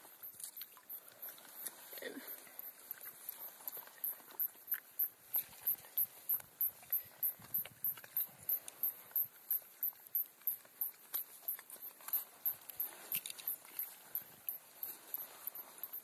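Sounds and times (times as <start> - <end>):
cicada chirping: 13.5 - 16.0.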